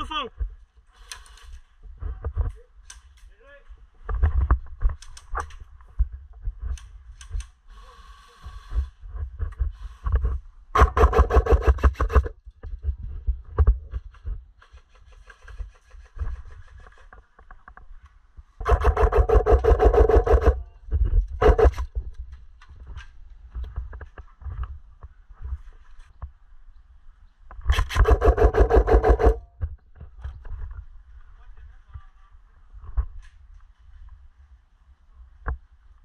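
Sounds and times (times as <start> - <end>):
airsoft rifle full-auto bursts: 10.8 - 12.3, 18.6 - 20.6, 27.7 - 29.4.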